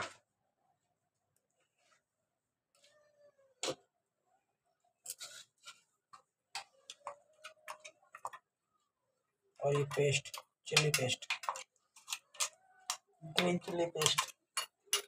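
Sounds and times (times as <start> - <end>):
faint meow-like cries: 2.8 - 3.7
spoon and bowl clattering: 9.6 - 15.0.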